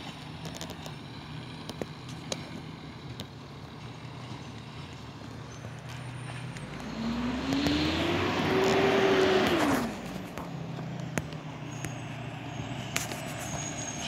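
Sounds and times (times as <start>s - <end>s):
low engine hum: 0.0s - 14.0s
vehicle engine revving: 0.0s - 14.0s.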